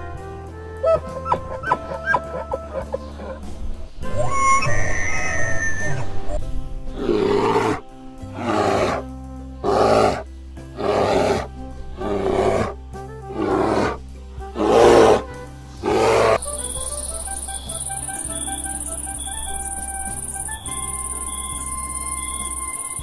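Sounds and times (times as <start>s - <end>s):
background music: 0.0s - 23.0s
large animal roaring growls: 4.2s - 14.0s, 14.6s - 16.4s.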